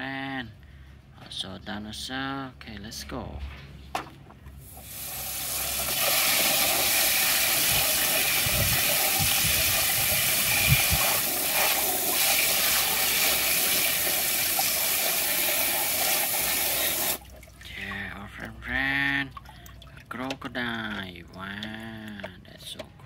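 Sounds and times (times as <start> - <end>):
water spray gun hissing: 4.6 - 17.2.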